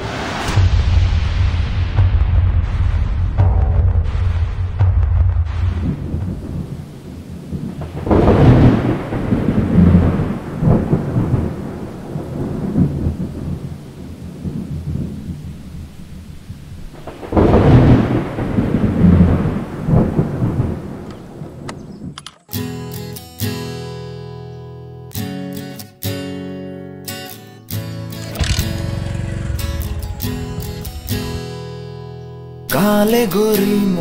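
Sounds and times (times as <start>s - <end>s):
rain hiss: 0.0s - 1.8s, 5.5s - 22.1s, 27.1s - 31.9s
thunder rolling: 0.0s - 22.2s, 28.3s - 32.3s.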